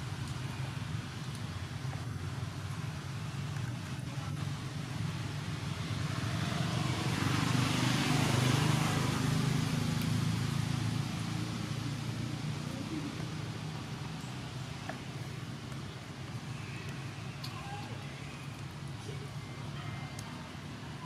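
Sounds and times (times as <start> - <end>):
vehicle passing: 5.5 - 14.7.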